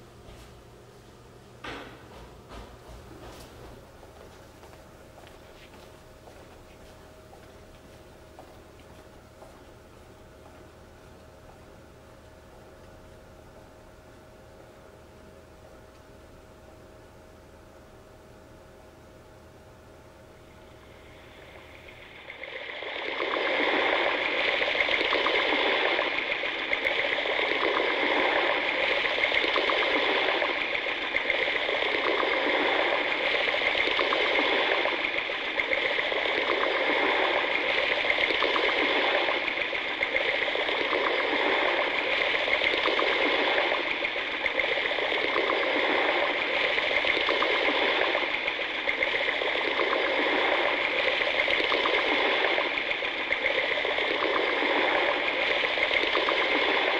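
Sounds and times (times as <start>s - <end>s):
water rushing and gurgling: 20.8s - 56.9s.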